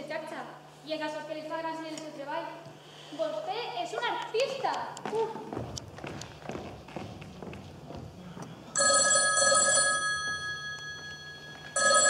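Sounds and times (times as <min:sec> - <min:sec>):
telephone ringing: 0:08.8 - 0:12.0.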